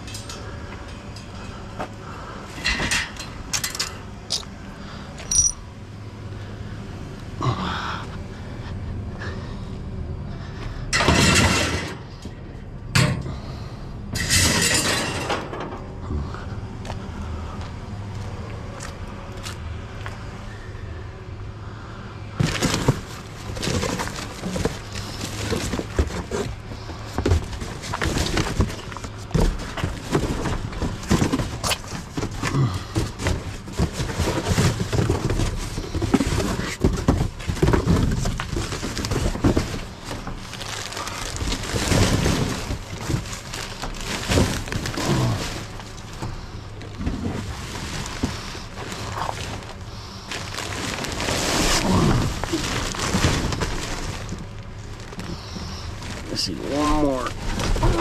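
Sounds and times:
cardboard and plastic bags shifting: 22.3s - 58.0s.

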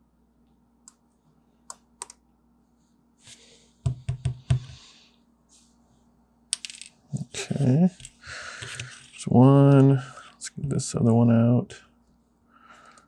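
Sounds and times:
knocks on desk: 3.9s - 4.7s.

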